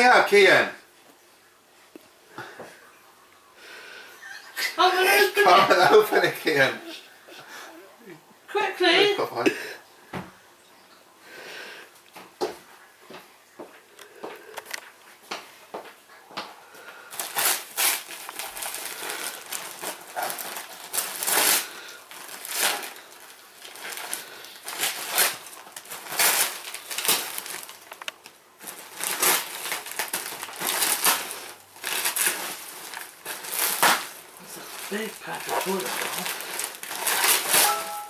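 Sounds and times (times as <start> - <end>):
wrapping paper ripping and crumpling: 17.1 - 38.0.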